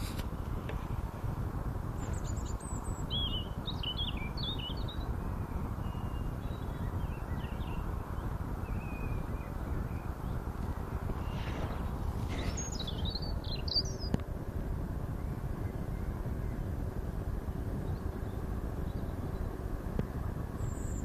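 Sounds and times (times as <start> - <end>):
small birds chirping: 0.0 - 21.0
steady low background noise: 0.0 - 21.0
faint bird whistles: 2.0 - 10.4, 11.1 - 14.2, 20.6 - 21.0.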